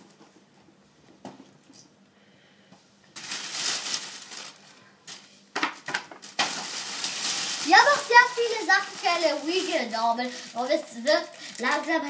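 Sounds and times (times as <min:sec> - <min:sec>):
plastic bag rustling: 0:03.2 - 0:12.0.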